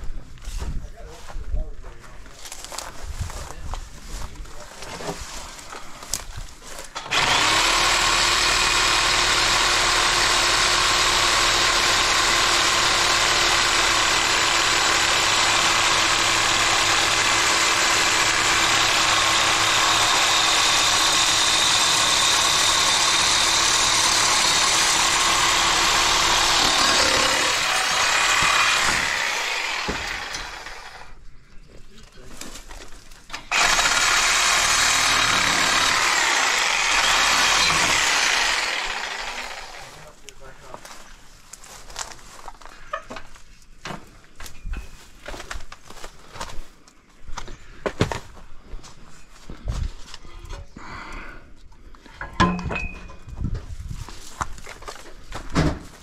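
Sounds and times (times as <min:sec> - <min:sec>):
reciprocating saw running: 0:07.0 - 0:31.2, 0:33.4 - 0:40.1.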